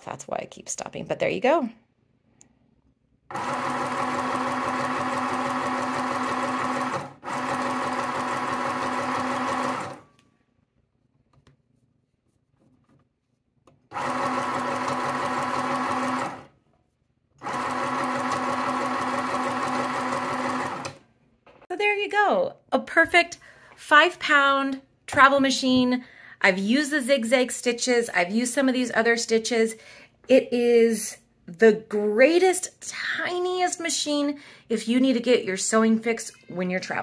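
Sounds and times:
sewing machine stitching: 3.3 - 10.1, 13.9 - 16.5, 17.4 - 21.1.

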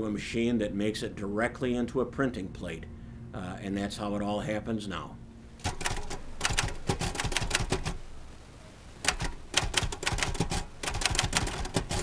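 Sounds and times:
manual typewriter key strikes: 5.6 - 8.0, 9.0 - 12.0.

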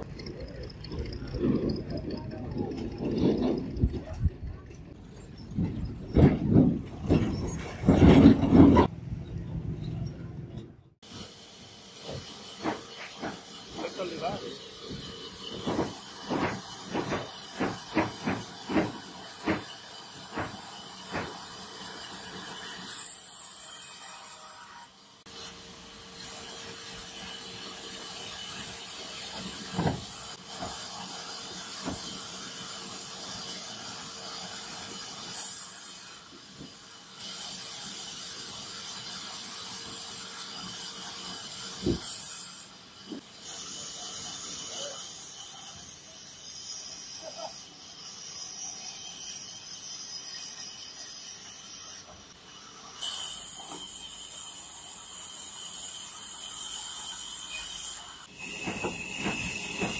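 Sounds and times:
bandsaw blade rasping through wood: 11.0 - 52.1, 52.7 - 59.9
sharp knocks: 15.6 - 19.7.

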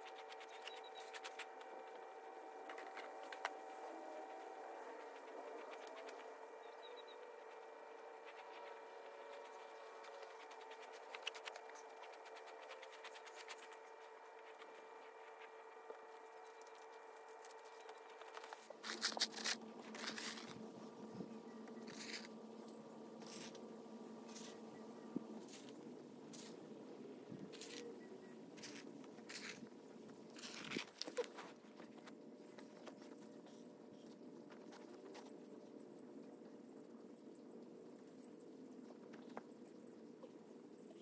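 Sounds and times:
steady hum: 0.0 - 41.0
rustling and scuffing in grass: 17.3 - 20.6, 21.9 - 22.3, 23.2 - 23.6, 24.2 - 24.6, 25.3 - 26.7, 27.4 - 29.7.

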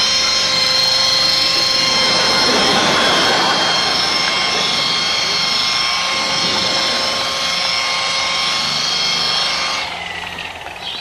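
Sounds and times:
mechanical whine with high tones: 0.0 - 11.0
bird chirps: 10.7 - 11.0.

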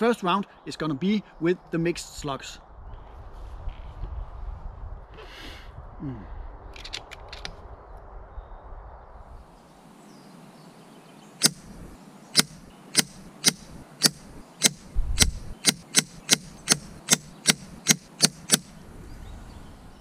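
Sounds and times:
air rifle shots: 11.4 - 18.8.

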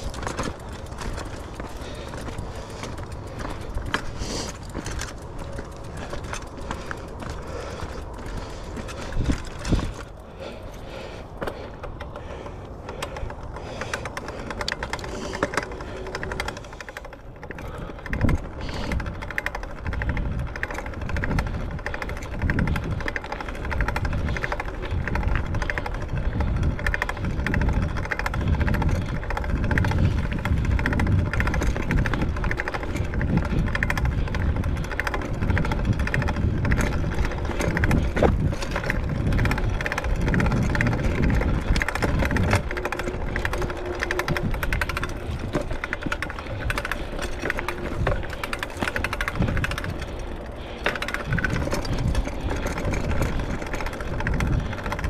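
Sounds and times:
horse hooves clip-clopping: 0.0 - 10.8, 28.9 - 50.2.

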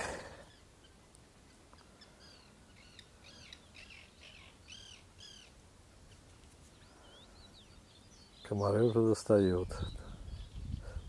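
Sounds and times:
birds calling faintly: 0.0 - 11.0.

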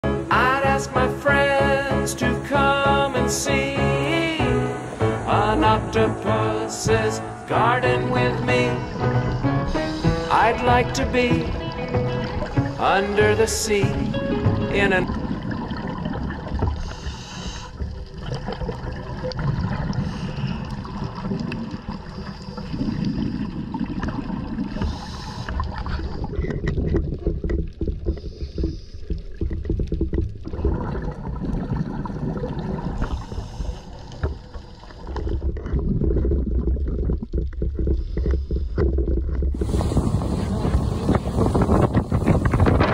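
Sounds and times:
underwater rumble of moving water: 0.0 - 42.9
underwater clicks and knocks: 10.3 - 17.0, 24.8 - 32.0, 34.1 - 39.7.

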